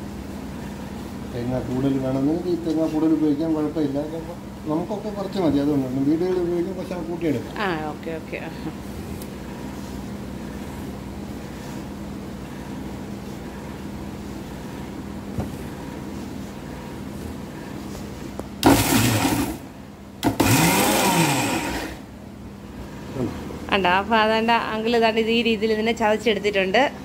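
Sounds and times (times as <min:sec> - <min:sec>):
mixer grinder motor whirring: 0:18.6 - 0:22.1.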